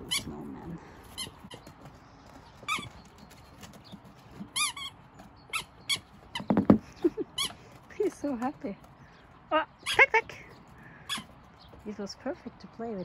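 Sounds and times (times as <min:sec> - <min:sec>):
squeaky rubber ball toy squeaking: 0:00.0 - 0:00.4, 0:01.2 - 0:01.6, 0:02.7 - 0:02.9, 0:04.4 - 0:06.8, 0:09.8 - 0:10.2, 0:11.1 - 0:11.3.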